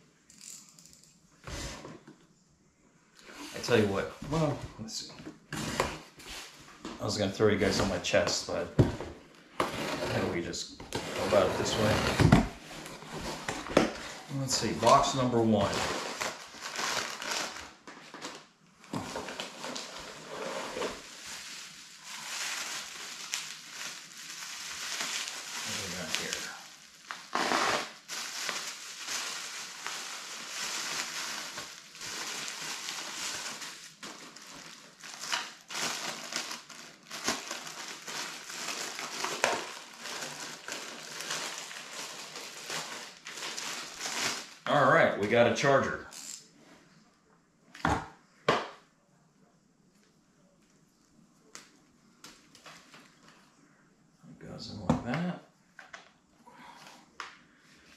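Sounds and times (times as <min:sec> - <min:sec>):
plastic bags crinkling: 0:11.2 - 0:45.4.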